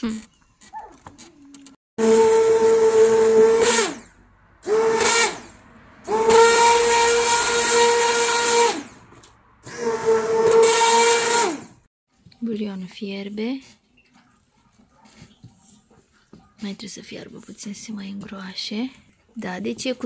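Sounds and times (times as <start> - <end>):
hand blender whine: 2.0 - 11.9.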